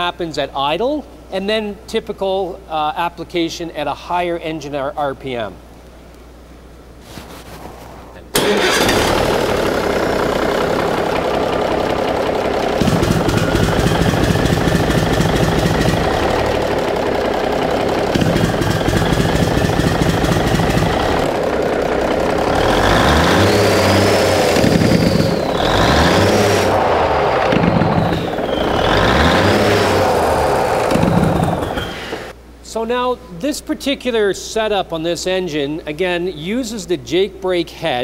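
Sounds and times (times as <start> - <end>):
diesel engine revving: 8.2 - 32.4
diesel engine brake crackle: 8.3 - 32.3
turbo whistle: 13.2 - 15.0, 23.4 - 30.0.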